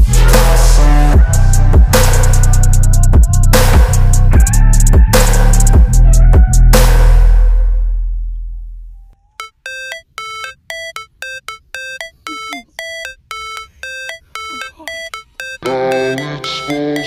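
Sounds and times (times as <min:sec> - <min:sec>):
bass-heavy electronic music: 0:00.0 - 0:08.9, 0:13.9 - 0:17.0.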